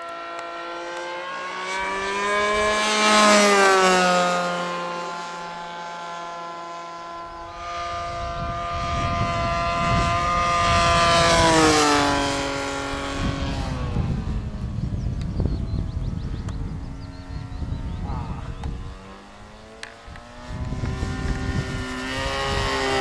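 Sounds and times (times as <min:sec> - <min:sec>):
model airplane engine buzzing: 0:00.0 - 0:23.0
wind rumble on microphone: 0:01.7 - 0:04.1, 0:07.1 - 0:23.0.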